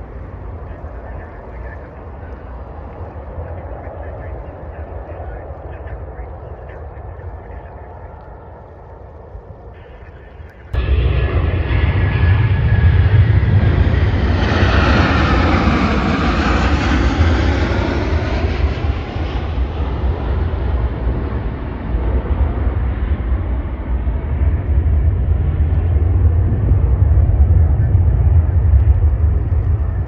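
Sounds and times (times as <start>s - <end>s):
jet airliner roar: 0.0s - 30.0s
steady low rumble: 0.0s - 30.0s.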